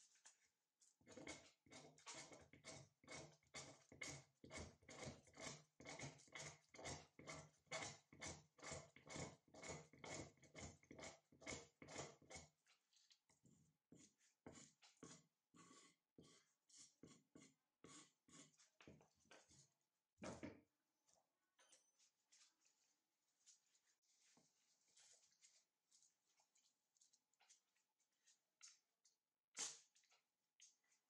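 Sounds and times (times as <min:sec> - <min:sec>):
knife scraping wood: 0:01.1 - 0:12.6, 0:14.0 - 0:19.5.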